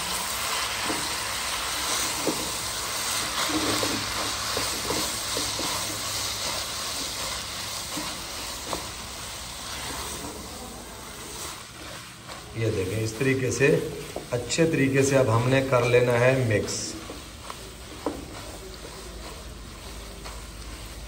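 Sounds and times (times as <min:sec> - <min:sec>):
noodles sizzling in a wok: 0:00.0 - 0:21.0
spatula knocking and scraping pan: 0:03.2 - 0:09.0.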